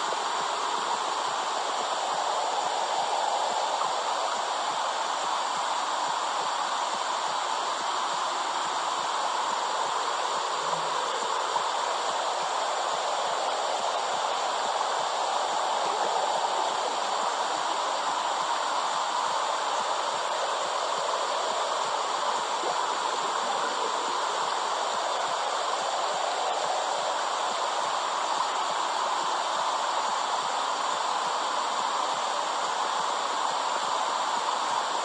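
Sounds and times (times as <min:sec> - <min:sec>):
steady whooshing hiss: 0:00.0 - 0:35.0.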